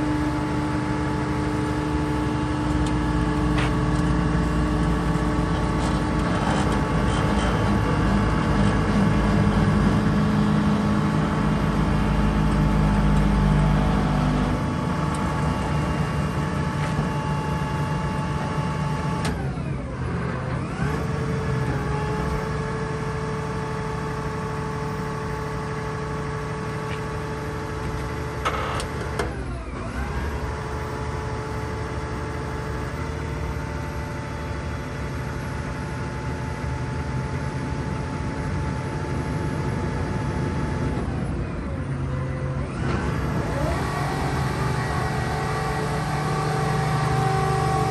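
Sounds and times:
diesel engine running: 0.0 - 47.9
steady machine whine: 0.0 - 47.9.

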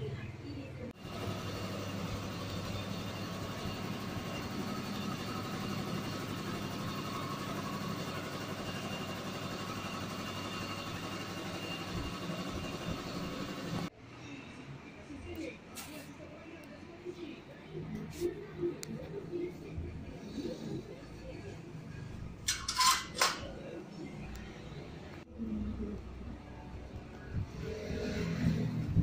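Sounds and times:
machine humming: 1.0 - 13.9.

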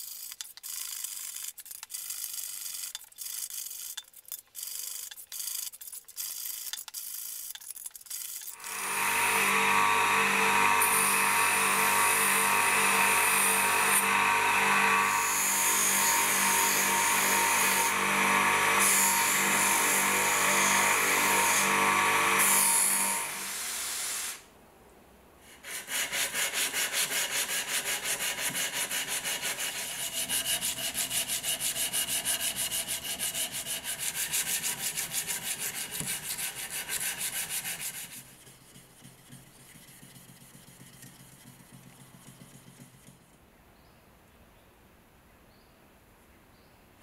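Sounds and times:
abrasive paper rubbing steel blade: 0.0 - 9.8, 25.5 - 43.2
bench grinder motor hum: 8.5 - 23.6.

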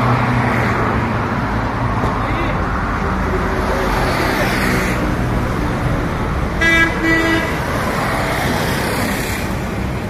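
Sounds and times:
road traffic: 0.0 - 10.0
vehicle horn toots: 6.6 - 7.6.

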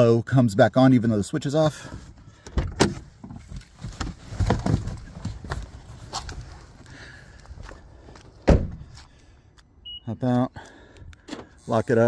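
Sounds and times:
knocks and rustling: 2.5 - 6.4
footsteps on pavement: 5.3 - 9.7
car door shutting: 8.4 - 8.8.

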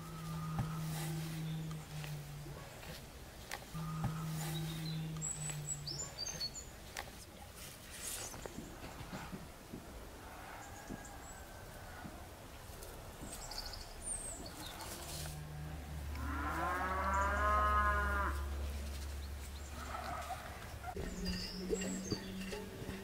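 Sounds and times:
cow mooing: 0.0 - 2.4, 3.8 - 6.2, 15.4 - 18.6.

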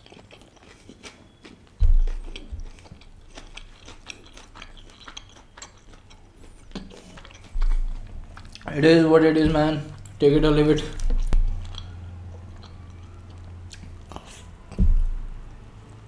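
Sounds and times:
mouth chewing: 0.0 - 15.7
low thud: 1.8 - 2.7, 9.4 - 11.6, 14.7 - 15.5.

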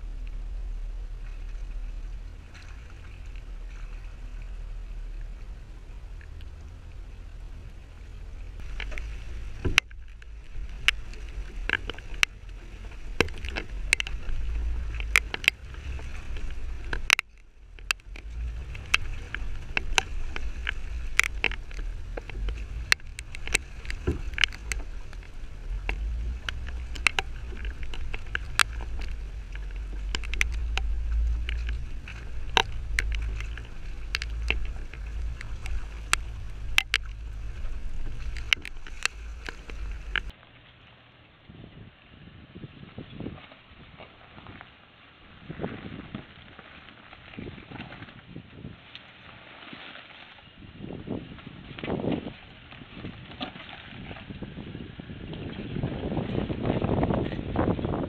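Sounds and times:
vehicle engine rumble: 0.0 - 40.7
knocks and clicks over rough trail: 0.0 - 40.8, 45.5 - 58.0.

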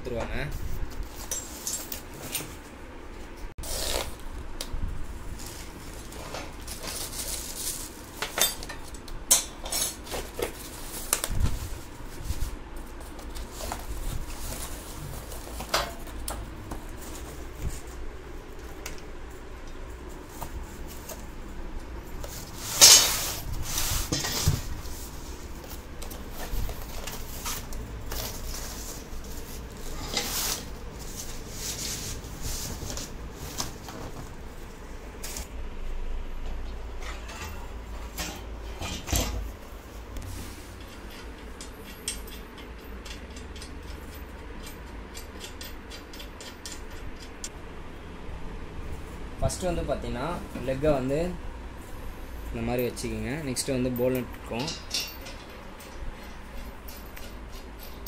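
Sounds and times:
cardboard and plastic rustling: 3.6 - 8.4, 10.0 - 18.8, 22.2 - 35.6
metal parts clinking and knocking: 22.7 - 23.2, 40.8 - 47.5, 54.0 - 58.0.

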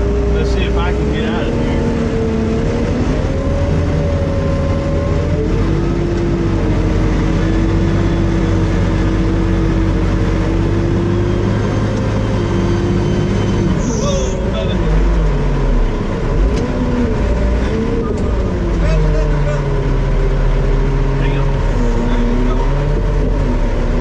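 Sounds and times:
diesel engine running under load: 0.0 - 24.0.

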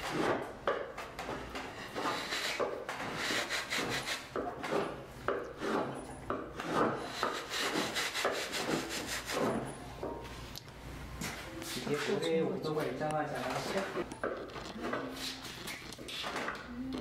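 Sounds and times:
hand tool scraping wood: 0.0 - 9.7.

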